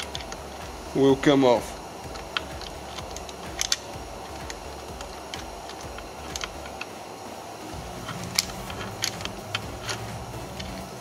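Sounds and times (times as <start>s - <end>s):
bolt clicking and tapping: 2.1s - 6.9s, 7.9s - 11.0s.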